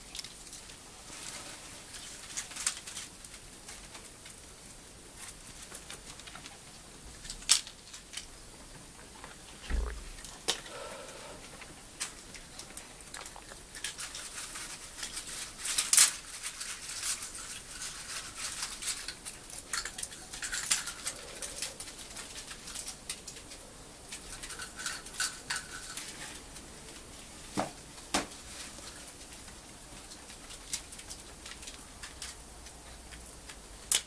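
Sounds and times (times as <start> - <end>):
dog claws clicking and scuffling: 11.6 - 27.0, 28.8 - 34.0.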